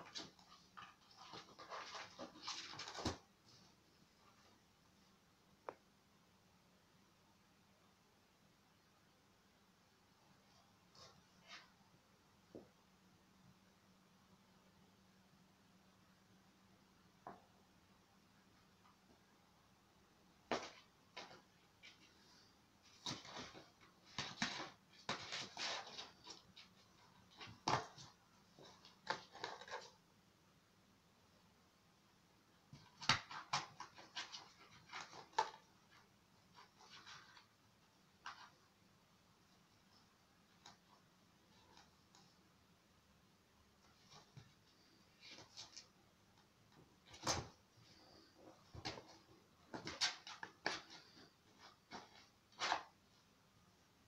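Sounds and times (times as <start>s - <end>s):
kitten scratching cardboard box: 22.9s - 30.0s, 32.8s - 37.6s.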